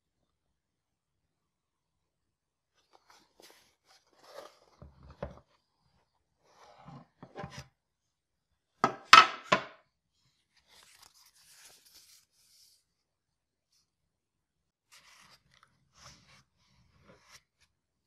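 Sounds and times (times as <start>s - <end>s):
paper rustling: 2.8s - 5.6s, 10.5s - 12.8s, 14.9s - 17.7s.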